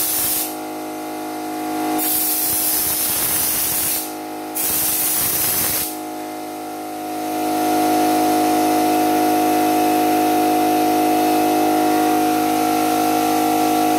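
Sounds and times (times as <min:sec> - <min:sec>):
spray gun hissing: 0:00.0 - 0:00.6, 0:02.0 - 0:06.0
air compressor running: 0:00.0 - 0:13.9.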